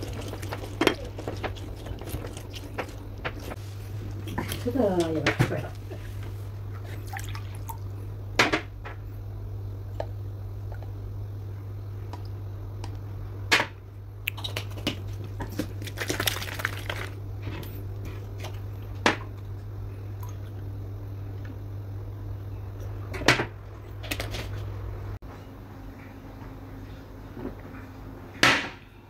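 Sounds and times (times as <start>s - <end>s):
water pouring and sloshing: 0.0s - 8.0s, 14.3s - 20.7s.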